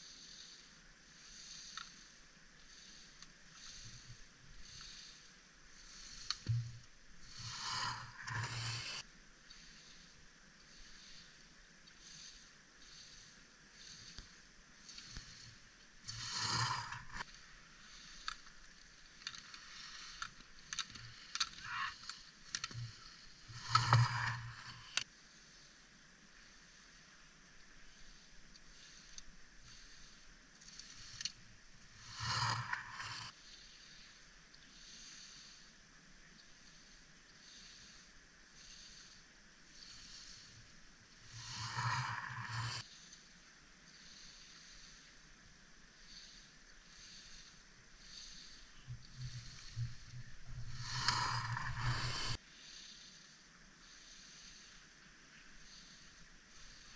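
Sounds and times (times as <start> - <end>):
skis scraping across hard snow: 50.7 - 52.4.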